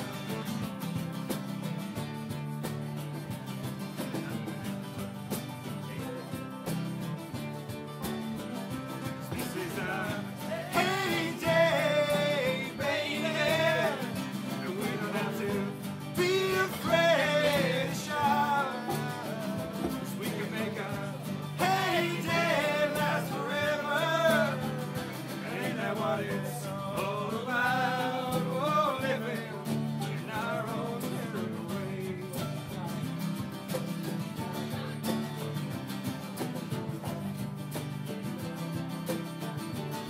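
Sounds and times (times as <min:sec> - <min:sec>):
strummed acoustic guitars: 0:00.0 - 0:40.0
bass line: 0:07.0 - 0:32.2.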